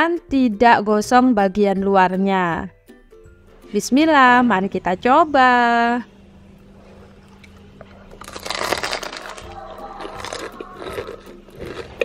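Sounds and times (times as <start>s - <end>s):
soft background music: 0.0s - 12.0s
crunchy chewing: 6.8s - 12.0s.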